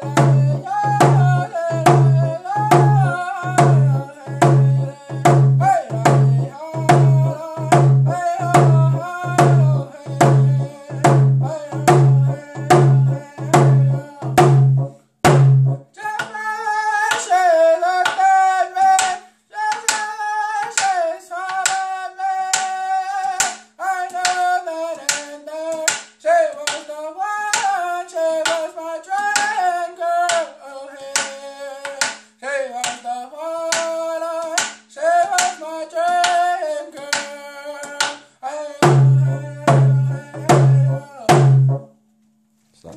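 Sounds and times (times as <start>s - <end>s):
man singing in a high voice: 0.0s - 14.6s, 15.9s - 41.7s
hand drum beating: 0.0s - 15.8s, 38.8s - 41.9s.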